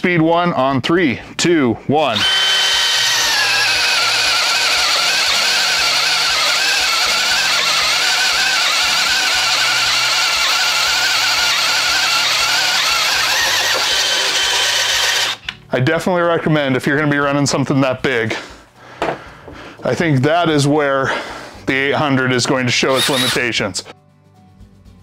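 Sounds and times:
hammer drill boring through wood: 2.0s - 15.4s, 22.9s - 23.6s.

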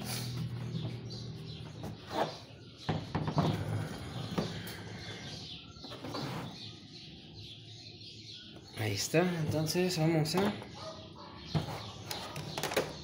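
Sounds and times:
birds chirping: 0.0s - 13.0s
knocks and rubbing on plastic cabinet: 11.5s - 13.0s.

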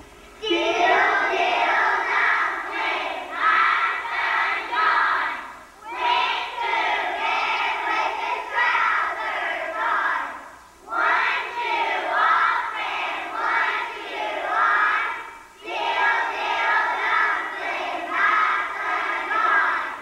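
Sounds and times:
children singing in unison: 0.4s - 20.0s.

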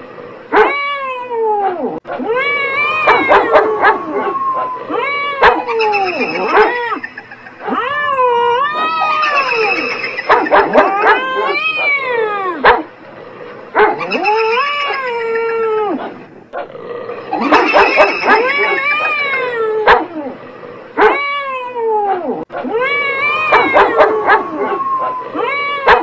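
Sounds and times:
cat yowling: 0.5s - 12.7s, 13.9s - 16.0s, 17.4s - 20.2s, 21.0s - 26.0s
dog barking: 0.6s - 0.8s, 3.0s - 4.3s, 5.4s - 6.9s, 9.3s - 12.0s, 12.6s - 12.9s, 13.8s - 14.3s, 17.4s - 19.1s, 19.8s - 20.1s, 21.0s - 21.2s, 23.5s - 24.7s.

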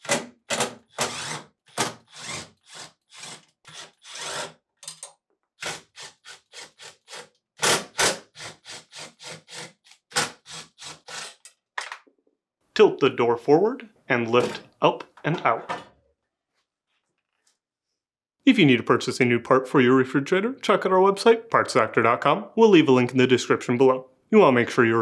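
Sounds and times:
cordless driver running in bursts: 0.9s - 4.5s.

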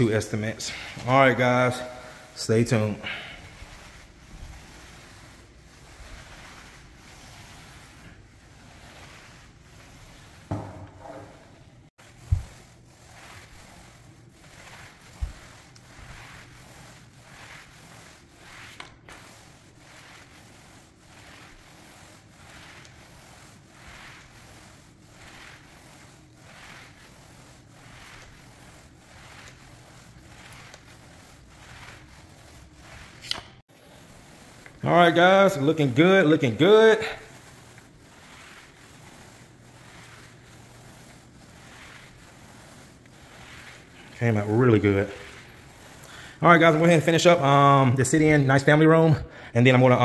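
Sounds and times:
applicator pad swishing on floor: 3.1s - 34.8s.

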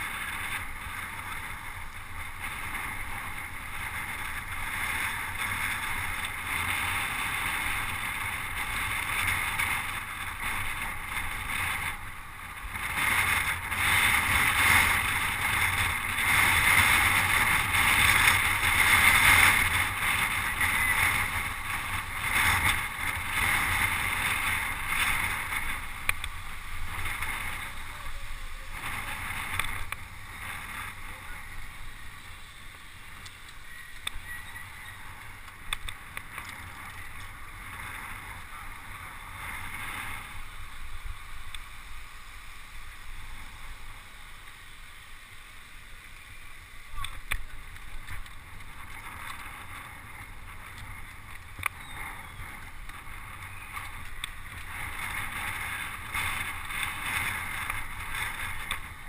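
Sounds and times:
wind buffeting microphone: 0.0s - 45.3s, 46.1s - 59.0s
tyres hissing on tarmac: 17.0s - 59.0s.

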